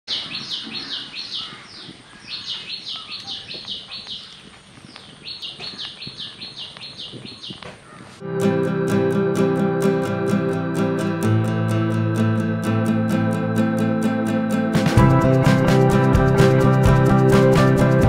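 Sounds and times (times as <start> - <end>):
songbird calling falling notes: 0.1 - 8.2
guitar music: 8.2 - 18.0.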